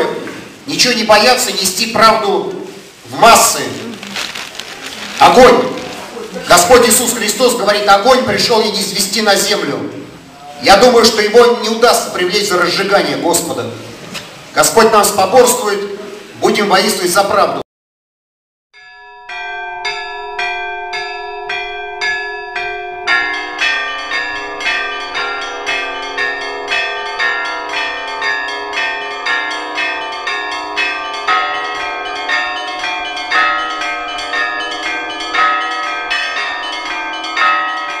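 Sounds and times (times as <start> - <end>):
higher church bells ringing: 5.1 - 10.0, 18.8 - 38.0
heavy low church bells: 18.8 - 38.0.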